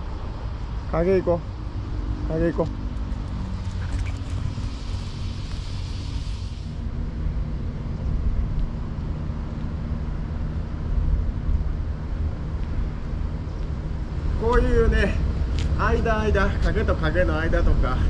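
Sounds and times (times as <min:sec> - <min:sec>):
wind rumbling on microphone: 0:00.0 - 0:18.0
high hiss: 0:04.2 - 0:06.8.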